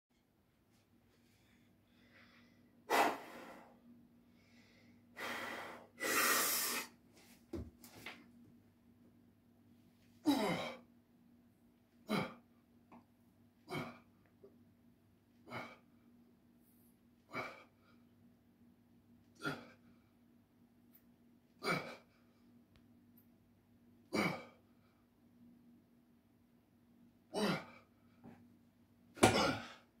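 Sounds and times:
man grunting with effort: 0:10.2 - 0:10.8, 0:12.1 - 0:12.4, 0:27.3 - 0:27.8, 0:29.2 - 0:29.8.

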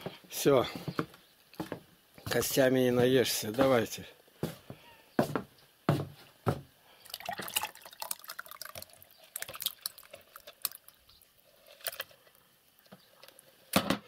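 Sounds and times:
runny food dripping into cup: 0:07.0 - 0:12.4.

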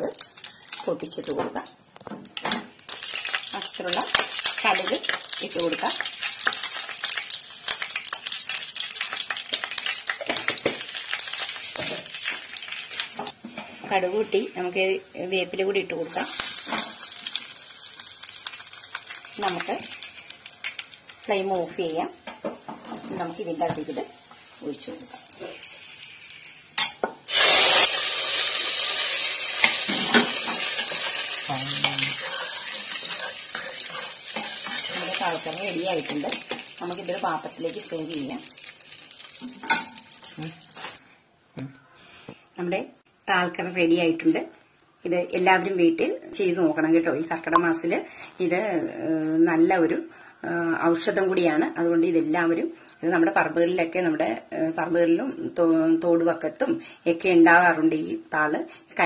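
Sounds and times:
seeds sizzling and popping in oil: 0:00.0 - 0:13.4, 0:15.4 - 0:41.0.

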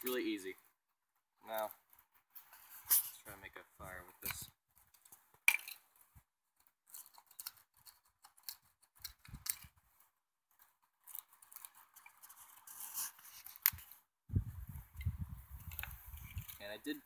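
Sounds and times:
knife shaving wood: 0:06.6 - 0:14.1.

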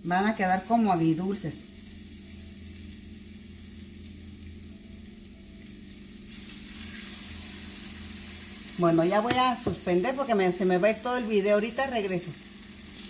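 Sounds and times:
meat sizzling in oil: 0:00.1 - 0:13.0.

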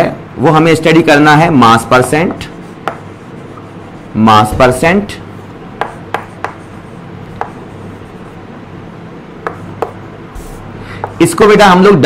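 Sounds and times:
chalk tapping and scraping on chalkboard: 0:01.9 - 0:08.4, 0:09.4 - 0:11.4.

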